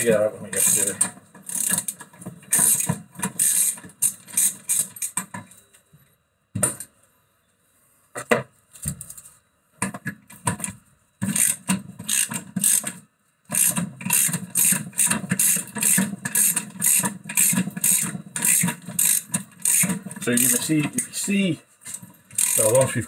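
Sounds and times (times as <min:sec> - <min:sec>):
ratchet spanner clicking: 0:00.6 - 0:05.2, 0:11.3 - 0:20.7, 0:21.9 - 0:22.9.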